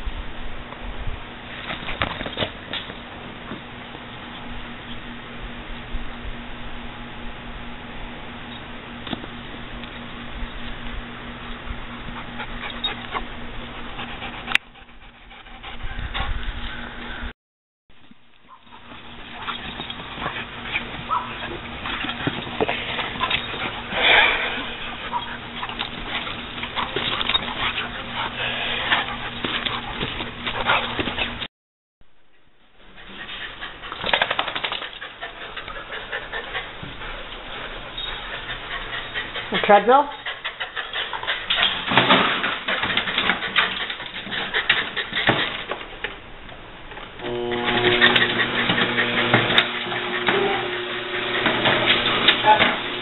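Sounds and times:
dogs play-fighting: 0:01.4 - 0:05.1, 0:09.0 - 0:16.9, 0:18.3 - 0:31.5, 0:32.8 - 0:53.0
steady multi-pitch hum: 0:17.9 - 0:31.5, 0:32.1 - 0:53.0.

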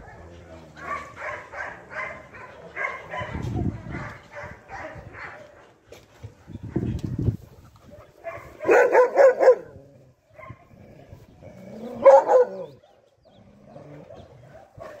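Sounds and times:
dogs barking: 0:00.0 - 0:05.8, 0:07.8 - 0:10.8, 0:11.8 - 0:15.0.

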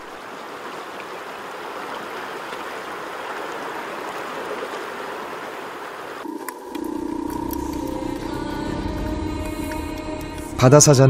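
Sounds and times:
seawater lapping over rocks: 0:00.0 - 0:06.9.

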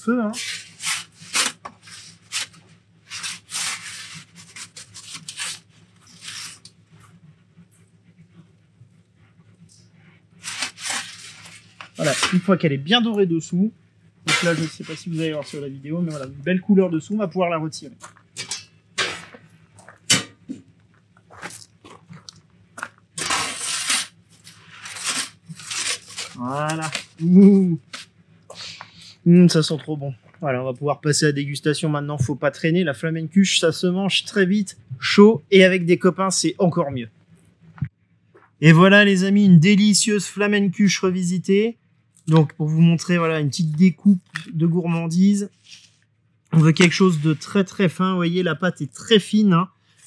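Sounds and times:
metal peel scraping oven floor: 0:00.3 - 0:06.7, 0:10.4 - 0:12.7, 0:14.2 - 0:16.5, 0:18.4 - 0:20.4, 0:23.2 - 0:27.3.

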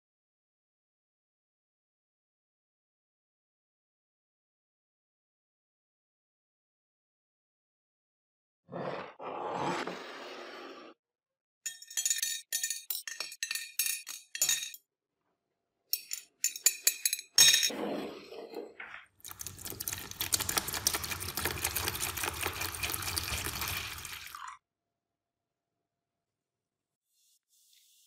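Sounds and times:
metal screws clinking on glass dish: 0:11.7 - 0:14.8, 0:16.0 - 0:17.7
liquid pouring and splashing: 0:19.2 - 0:24.6.

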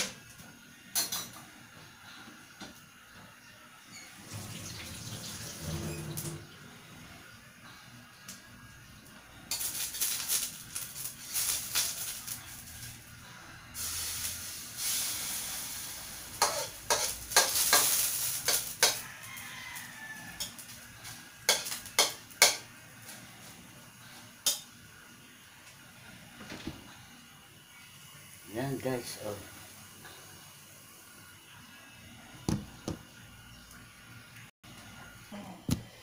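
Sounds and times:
batter sizzling in hot oil: 0:03.8 - 0:06.0, 0:08.2 - 0:26.1
metal spatula scraping a wok: 0:16.4 - 0:19.2.

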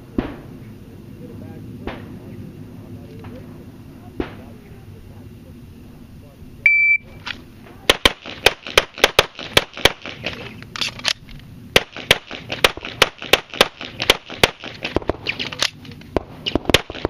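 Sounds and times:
pistol shots: 0:00.2 - 0:00.6, 0:07.8 - 0:10.9, 0:11.7 - 0:17.0.

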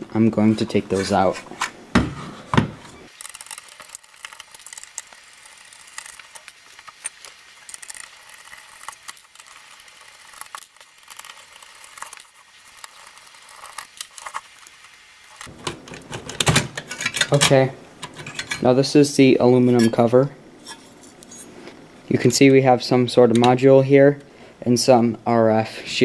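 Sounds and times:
screwdriver clicks and metal scrapes: 0:15.4 - 0:18.7.

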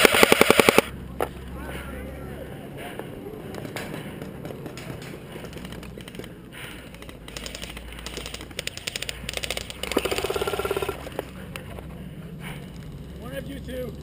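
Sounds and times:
airsoft guns firing full auto: 0:00.0 - 0:00.9, 0:07.0 - 0:11.2.

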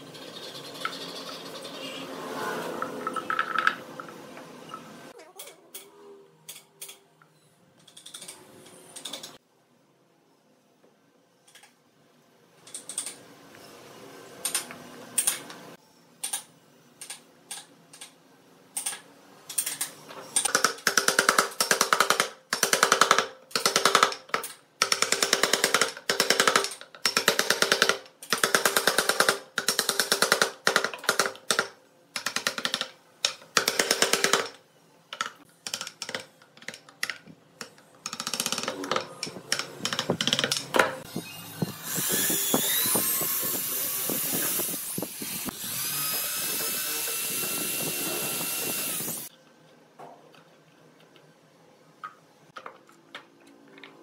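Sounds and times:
electric drill boring into wood: 0:41.1 - 0:49.3.

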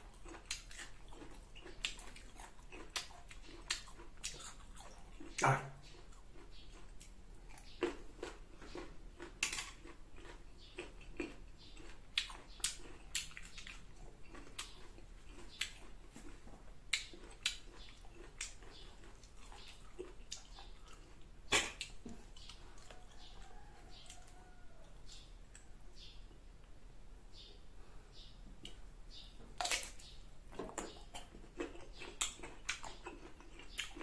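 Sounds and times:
person chewing crunchy fruit: 0:00.0 - 0:26.1, 0:28.5 - 0:34.0.

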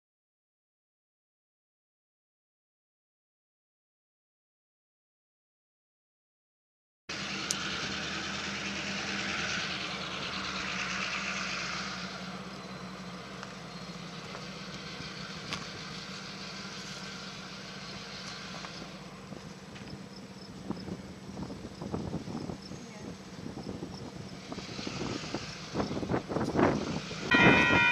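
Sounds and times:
engine hum: 0:07.1 - 0:27.9
hiss: 0:24.3 - 0:26.0.

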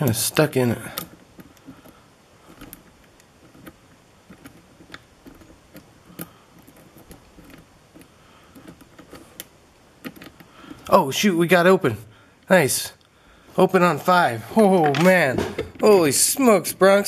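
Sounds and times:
lock pick clicks and scrapes: 0:00.9 - 0:10.9.

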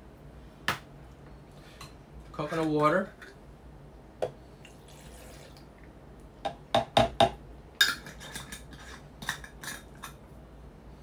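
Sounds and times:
liquid trickling into jug: 0:04.6 - 0:05.7.

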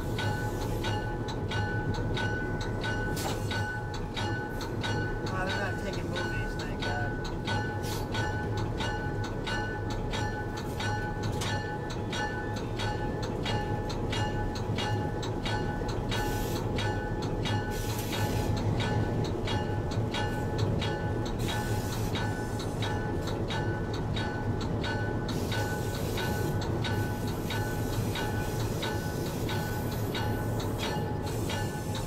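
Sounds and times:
locomotive engine hum: 0:00.0 - 0:32.0.

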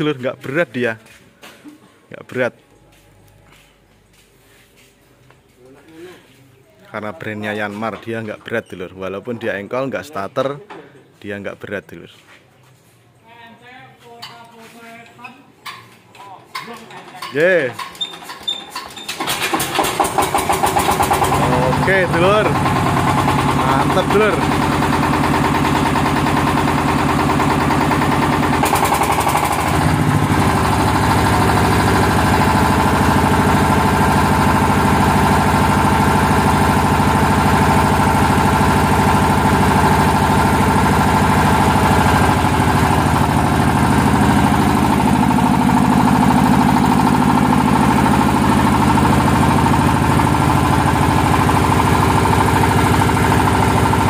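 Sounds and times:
diesel generator engine running: 0:19.2 - 0:54.0.

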